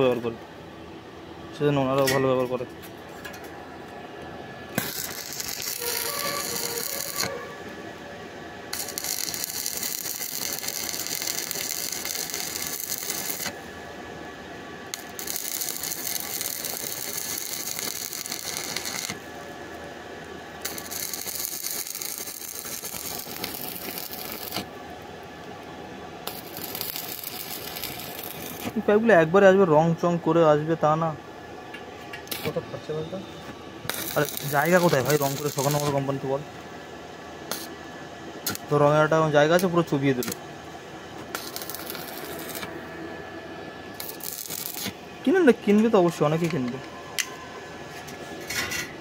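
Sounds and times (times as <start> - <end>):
welding arc crackling: 4.7 - 7.6, 8.7 - 13.7, 14.9 - 19.4, 20.6 - 24.8, 26.2 - 29.0, 32.2 - 32.6, 33.8 - 36.3, 37.5 - 37.7, 38.4 - 40.4, 41.3 - 42.8, 43.9 - 45.6.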